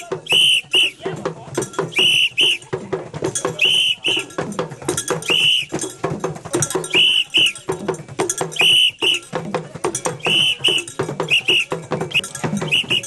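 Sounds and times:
rhythmic percussion knocks: 0.0 - 13.0
whistle double blasts: 0.2 - 1.0, 1.9 - 2.6, 3.6 - 4.3, 5.2 - 5.8, 6.9 - 7.6, 8.6 - 9.3, 10.2 - 13.0.

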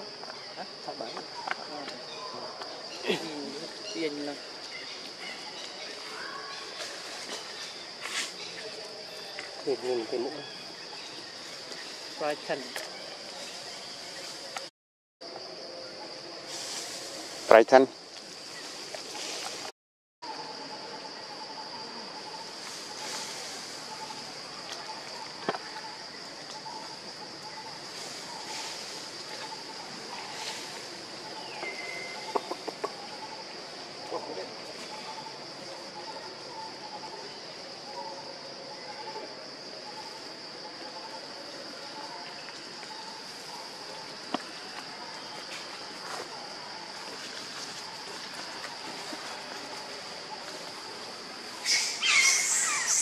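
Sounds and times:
soft outdoor hiss: 0.0 - 19.7, 20.3 - 53.0
insects droning: 0.0 - 53.0
high-pitched insect drone: 51.6 - 53.0.

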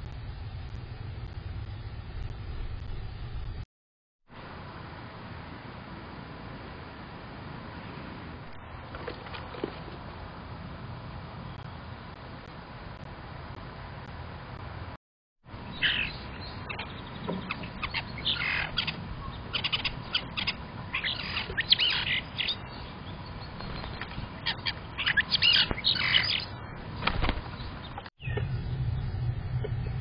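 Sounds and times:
starling chirps and whistles: 15.7 - 26.8.

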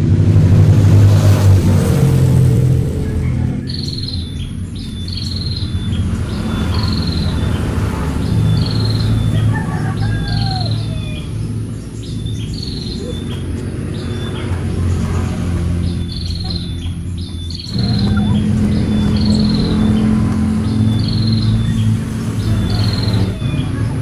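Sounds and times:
low background rumble: 0.0 - 24.0
bird calling: 3.2 - 14.7, 15.8 - 24.0
thin high-pitched drone: 17.7 - 23.5.

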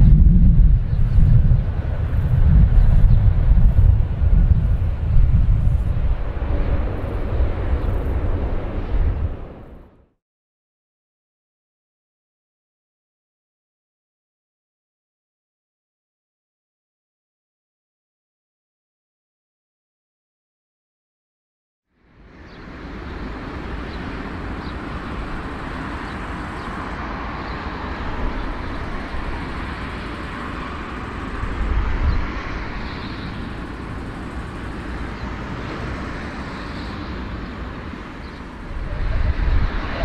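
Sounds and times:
low rumble: 0.0 - 10.0
jet engines running: 0.0 - 10.1, 22.0 - 40.0.

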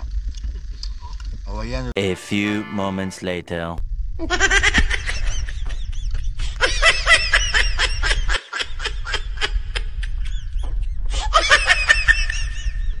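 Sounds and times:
steady low rumble: 3.1 - 13.0
high-pitched giggling laughter: 4.2 - 10.6, 11.2 - 13.0.

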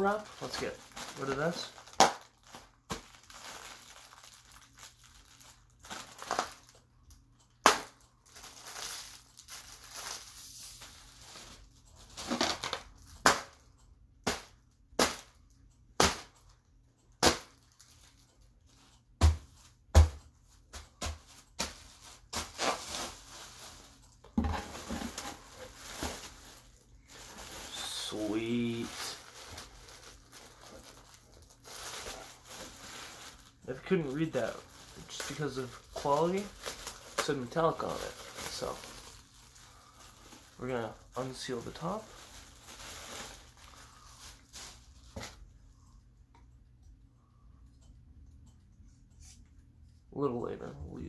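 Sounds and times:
bubble wrap snapping: 0.0 - 6.8, 7.6 - 13.6, 21.0 - 24.0, 24.7 - 45.4
bubble wrap crinkling: 0.0 - 16.3, 17.2 - 19.8, 20.5 - 45.5.

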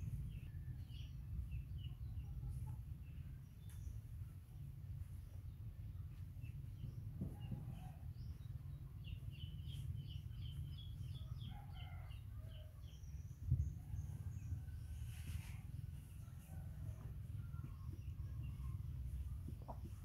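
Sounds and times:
steady low rumble: 0.0 - 11.5, 13.0 - 20.0.

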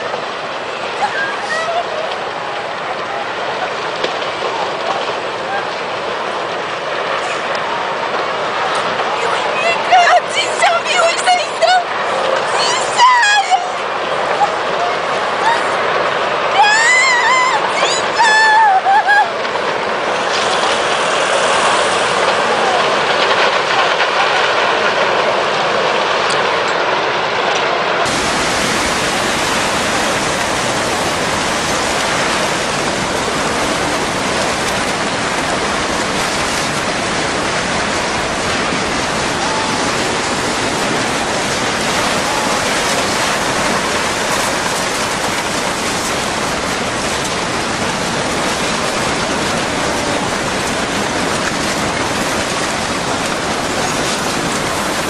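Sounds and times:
floodwater rushing: 0.0 - 55.0.

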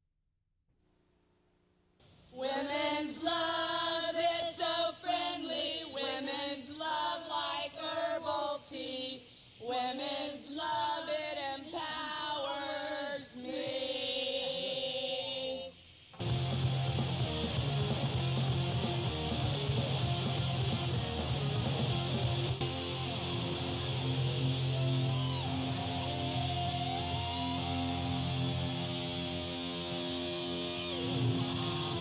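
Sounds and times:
woman singing a cappella: 2.3 - 15.8.

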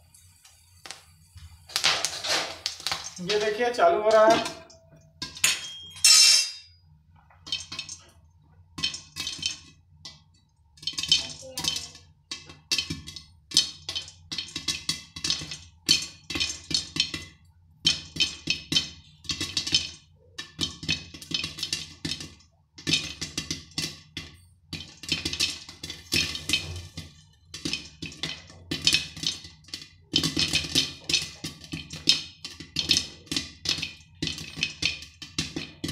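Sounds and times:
popcorn kernels popping: 0.8 - 6.5, 7.4 - 35.9
kernels clinking on glass lid: 5.2 - 6.7.

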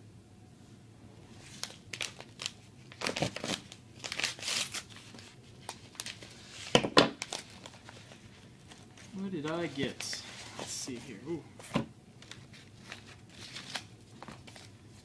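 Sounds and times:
paper tearing and crinkling: 1.4 - 10.6, 12.2 - 14.8.

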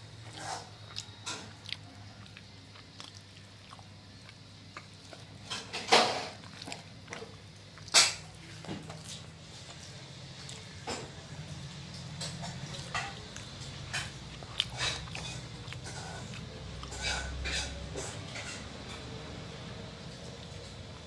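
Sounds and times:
pedestal fan humming: 0.0 - 21.0
quiet chewing and mouth clicks: 0.2 - 5.5, 6.4 - 10.8, 11.5 - 17.8.

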